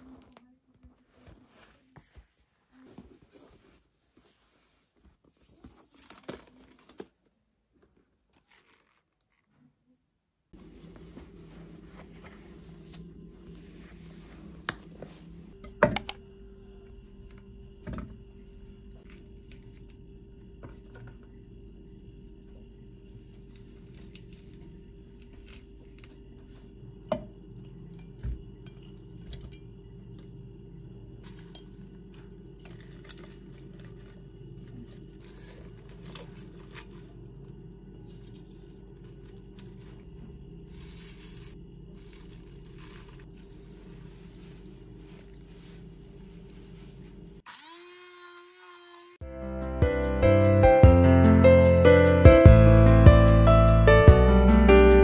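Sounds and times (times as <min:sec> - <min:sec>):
steady low hum: 0:10.6 - 0:47.4.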